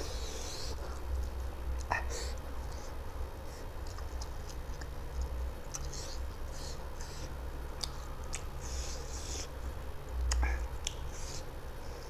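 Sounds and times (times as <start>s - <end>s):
steady low hum: 0.0s - 12.0s
wet chewing and mouth clicks: 3.8s - 9.5s, 10.1s - 11.4s.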